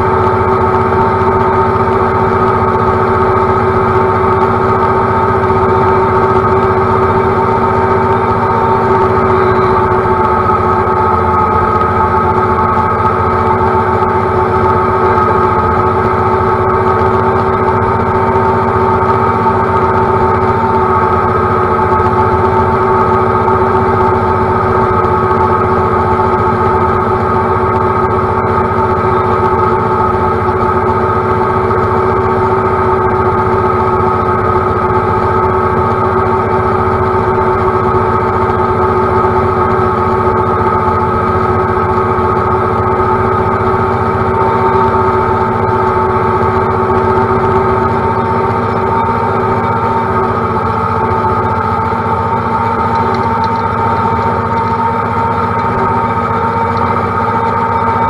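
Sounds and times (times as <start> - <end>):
tractor diesel engine droning: 0.0 - 58.0.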